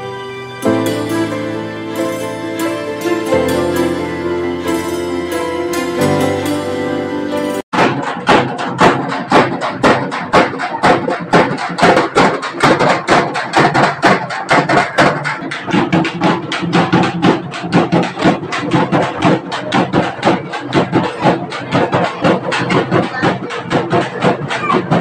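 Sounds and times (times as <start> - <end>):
background music: 0.0 - 7.7
frame drums beaten with sticks: 0.6 - 25.0.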